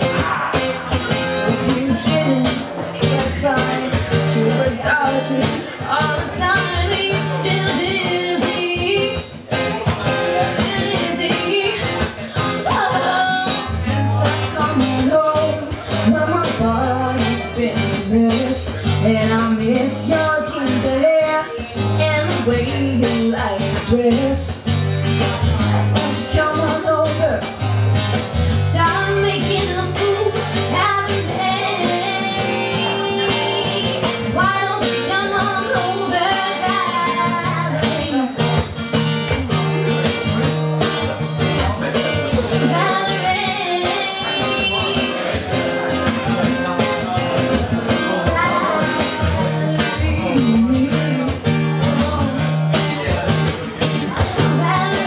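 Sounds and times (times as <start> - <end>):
woman singing: 0.0 - 24.8, 25.6 - 27.6, 28.5 - 40.3, 40.9 - 46.8, 47.5 - 53.2, 54.0 - 55.0
strummed acoustic guitar: 0.0 - 55.0.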